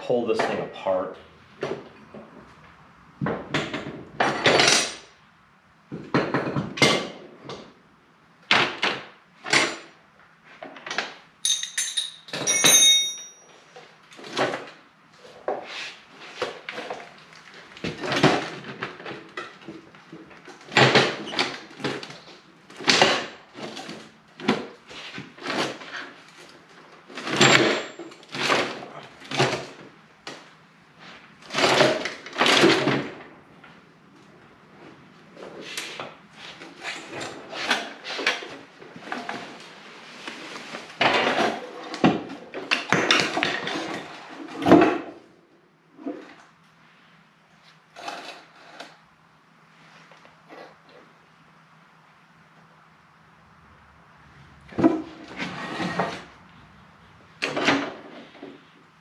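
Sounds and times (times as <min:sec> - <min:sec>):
metal tools clanking: 0:11.4 - 0:13.6
short metallic ring: 0:11.4 - 0:13.6.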